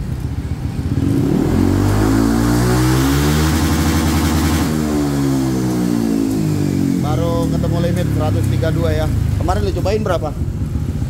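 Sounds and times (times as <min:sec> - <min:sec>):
scooter engine revving: 0:00.0 - 0:11.0.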